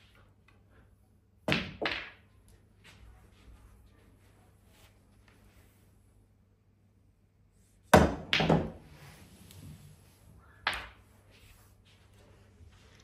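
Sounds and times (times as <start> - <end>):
pool balls knocking: 8.0 - 8.9.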